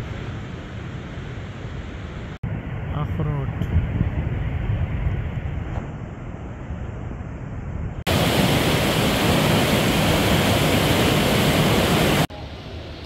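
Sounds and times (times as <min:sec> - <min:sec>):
river rushing over boulders: 0:08.1 - 0:12.3.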